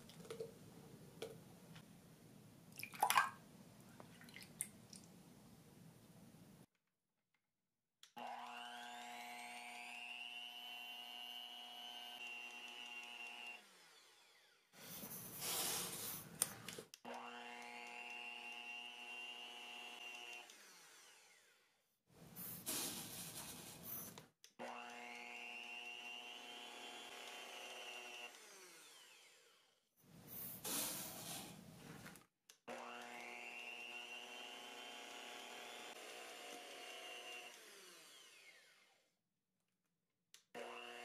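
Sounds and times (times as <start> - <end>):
electric hand mixer motor whine: 8.2 - 14.6, 17.1 - 21.6, 24.6 - 29.8, 32.7 - 39.1, 40.6 - 41.0.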